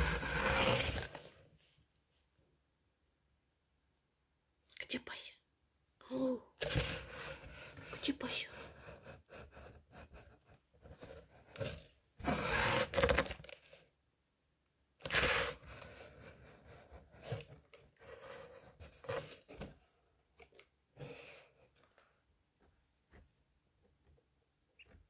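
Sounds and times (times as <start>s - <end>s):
cardboard box scraping and rustling: 0.0s - 1.4s, 10.9s - 13.6s, 15.0s - 19.7s.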